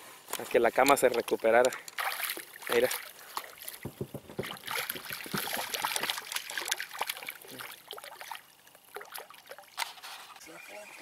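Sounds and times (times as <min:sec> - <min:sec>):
water splashing and dripping: 0:01.0 - 0:10.0
light knocks: 0:03.8 - 0:04.6.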